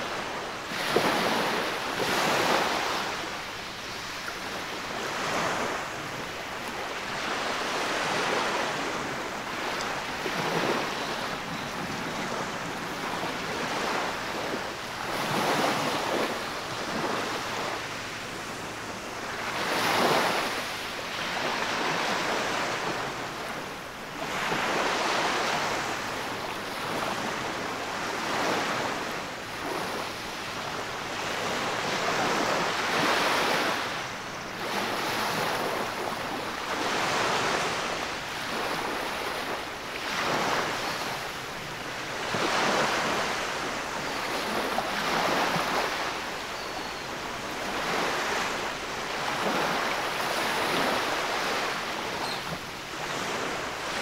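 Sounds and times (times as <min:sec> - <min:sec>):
small waves breaking on beach: 0:00.0 - 0:54.0.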